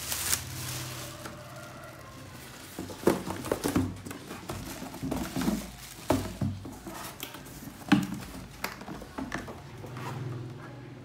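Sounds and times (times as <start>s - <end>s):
plastic rustling: 0.0s - 10.2s.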